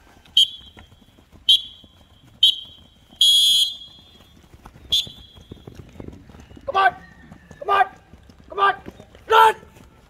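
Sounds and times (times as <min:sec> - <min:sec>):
whistle blasts: 0:00.3 - 0:05.6.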